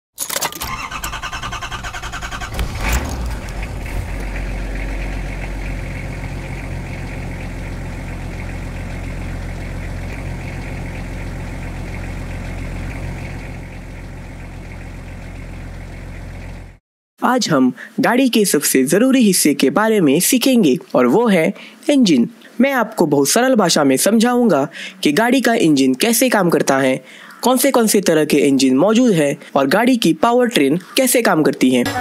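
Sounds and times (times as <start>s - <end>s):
car engine cranking and idling: 0.2s - 16.8s.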